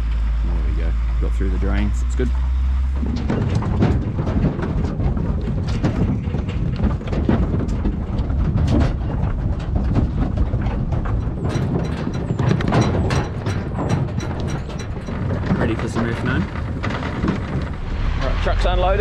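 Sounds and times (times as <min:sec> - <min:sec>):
steady low rumble: 0:00.0 - 0:19.0
sheep hooves clattering on metal floor: 0:02.7 - 0:17.8.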